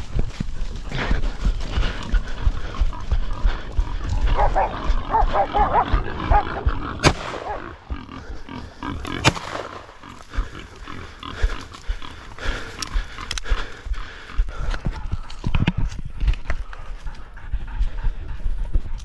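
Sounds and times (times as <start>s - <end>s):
running footsteps: 0.0s - 19.0s
pigs squealing: 2.1s - 12.4s
gunshots: 6.9s - 7.8s, 9.1s - 9.9s.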